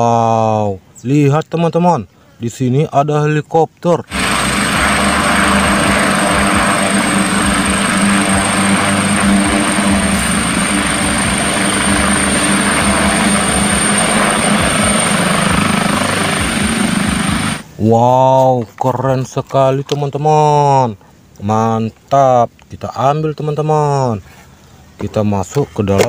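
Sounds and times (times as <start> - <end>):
helicopter rotor and turbine noise: 4.0 - 17.9
high-pitched turbine whine: 4.0 - 17.9.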